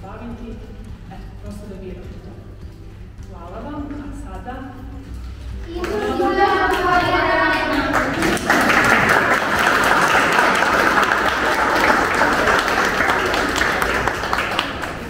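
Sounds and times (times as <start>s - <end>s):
people applauding: 5.6s - 15.0s.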